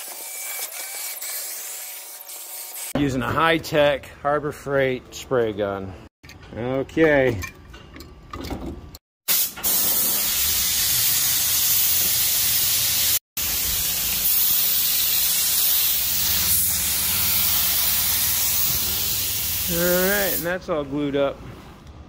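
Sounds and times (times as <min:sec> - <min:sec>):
spray gun hissing: 0:09.3 - 0:20.5.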